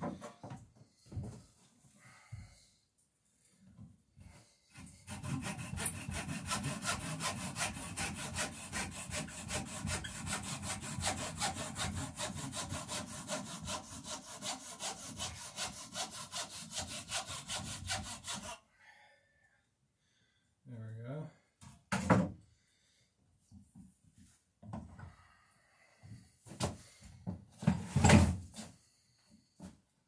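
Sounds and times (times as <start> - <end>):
hand saw cutting wood: 4.7 - 18.6.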